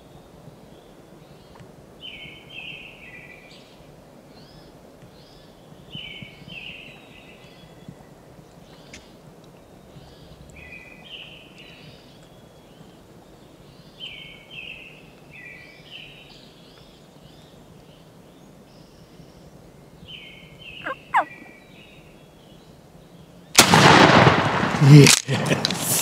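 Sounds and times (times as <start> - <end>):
wild turkeys calling: 20.8 - 21.6
shotgun blast: 23.6 - 25.4.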